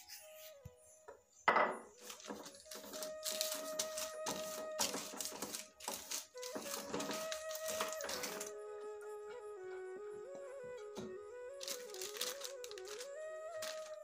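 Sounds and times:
soft melodic background music: 0.0s - 14.0s
paper rustling and crinkling: 2.0s - 8.6s, 10.7s - 14.0s.

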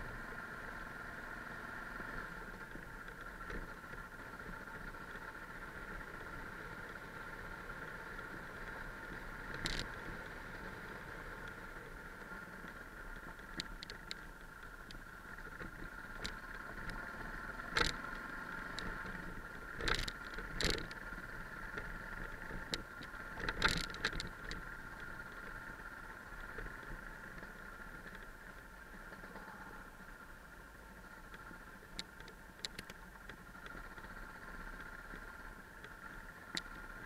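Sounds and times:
motorcycle engine running: 0.0s - 37.0s
motorcycle rattling over stones: 2.5s - 29.7s.

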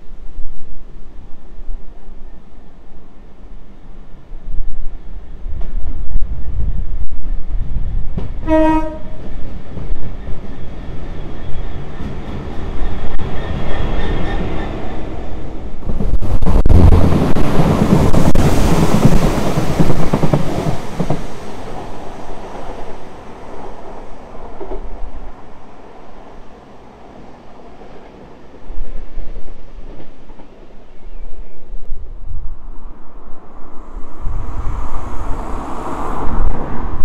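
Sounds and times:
diesel locomotive passing: 2.0s - 37.0s
locomotive horn blast: 8.4s - 9.3s.

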